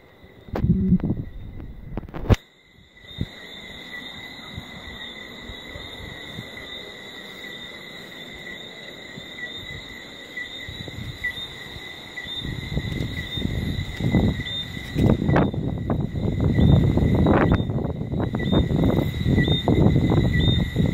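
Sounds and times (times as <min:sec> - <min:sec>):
night insects chirping: 0:00.0 - 0:20.9
low rumble: 0:00.4 - 0:02.3.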